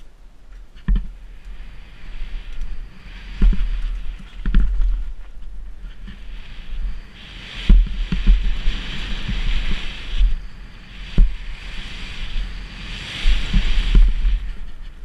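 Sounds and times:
wind on microphone: 0.0s - 15.0s
bike knocking and rattling: 0.6s - 1.4s, 3.3s - 6.3s.

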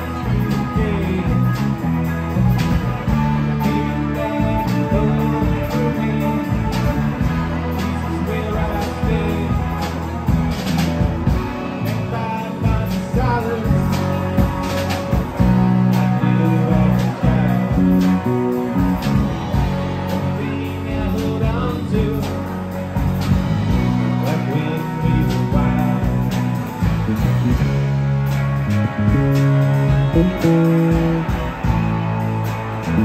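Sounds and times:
live rock band playing: 0.0s - 33.0s
sustained bass notes: 0.0s - 33.0s
drum beat: 23.0s - 33.0s.

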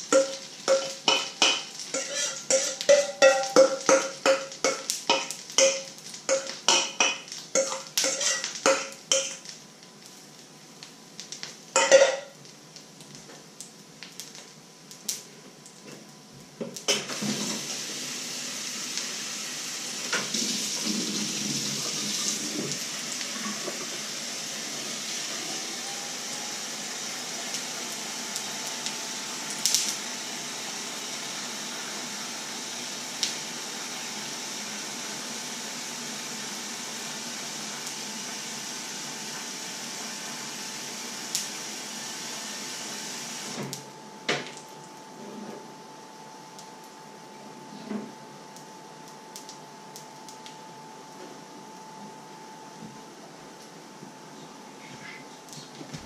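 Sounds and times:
kitchen tap running: 0.0s - 9.3s, 17.0s - 25.3s
utensil tapping metal bowl: 0.1s - 7.8s.

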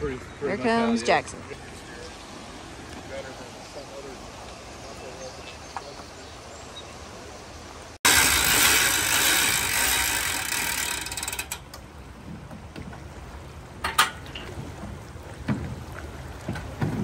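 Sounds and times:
hand winch ratcheting: 8.1s - 11.8s.

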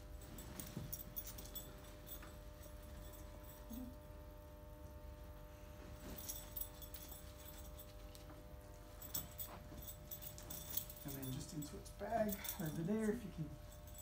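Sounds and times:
steady low hum: 0.0s - 14.0s
fabric rustling: 0.1s - 3.6s, 5.6s - 11.5s.

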